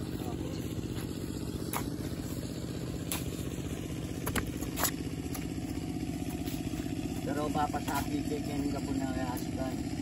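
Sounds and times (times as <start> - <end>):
small engine idling: 0.0 - 10.0
shovels scraping damp soil: 1.0 - 8.3.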